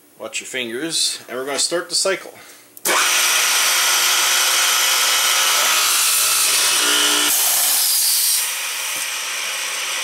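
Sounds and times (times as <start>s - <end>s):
boring machine drilling plywood: 2.9s - 10.0s.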